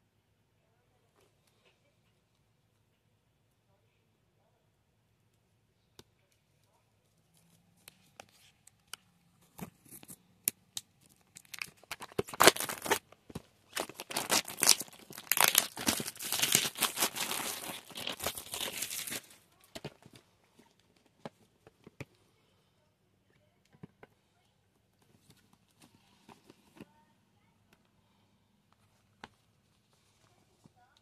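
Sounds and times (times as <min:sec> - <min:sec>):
plastic wrap crinkling and tearing: 0:11.0 - 0:20.1
plastic wrap being punctured: 0:11.1 - 0:13.0, 0:13.7 - 0:20.0.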